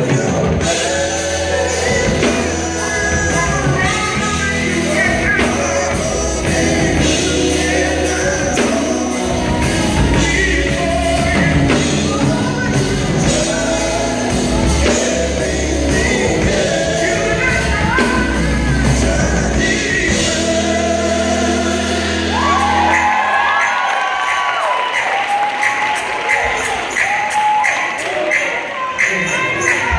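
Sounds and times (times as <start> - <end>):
people singing: 0.0 - 24.1
gospel band playing: 0.0 - 29.9
people shouting and whooping: 22.3 - 29.9.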